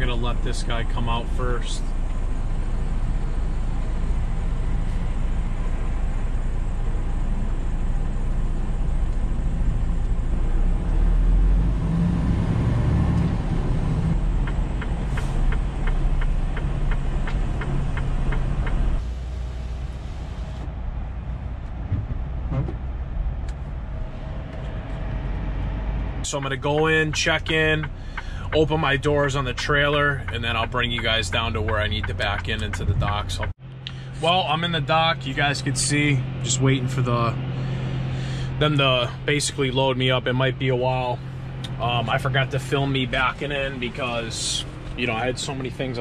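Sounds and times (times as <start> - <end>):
diesel truck engine rumble: 0.0 - 46.0
truck cab hum: 0.0 - 46.0
regular ticking: 14.1 - 19.0, 26.2 - 34.0.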